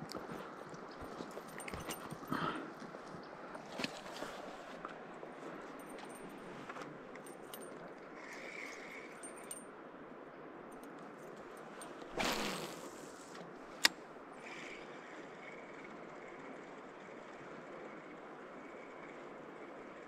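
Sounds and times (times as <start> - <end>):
clicks and rattles of gear: 0.0 - 9.6.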